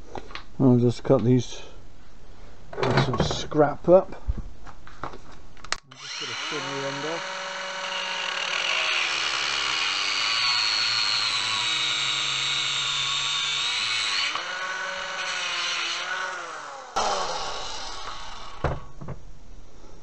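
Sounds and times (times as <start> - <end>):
angle grinder cutting steel: 5.9 - 18.7.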